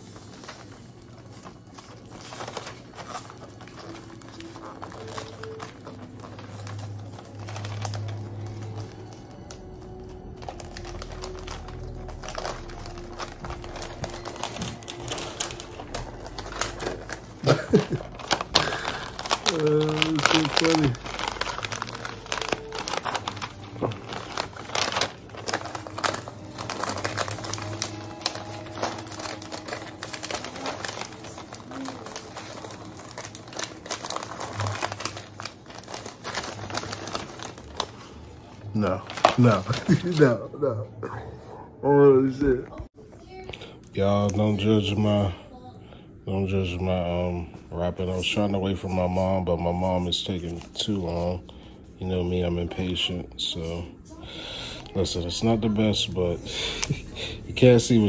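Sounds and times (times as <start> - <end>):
wrapping paper crinkling: 0.0 - 40.4, 49.0 - 52.0.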